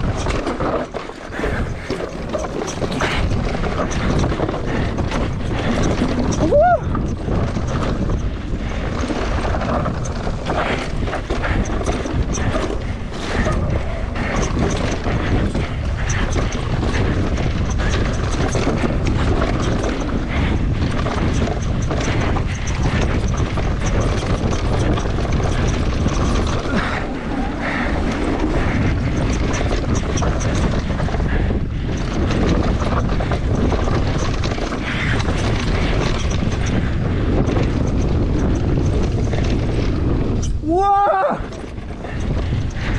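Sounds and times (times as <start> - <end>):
bike knocking and rattling: 0.0 - 42.9
bike tyres on dirt: 0.0 - 42.9
wind on microphone: 0.0 - 42.9.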